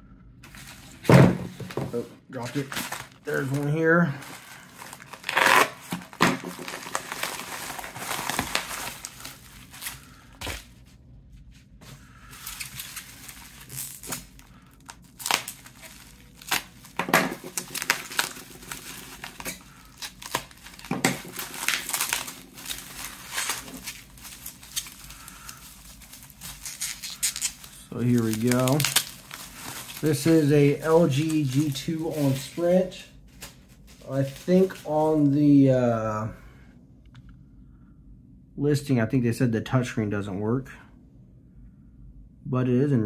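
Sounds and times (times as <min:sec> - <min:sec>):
bubble wrap crinkling: 0:00.5 - 0:35.4.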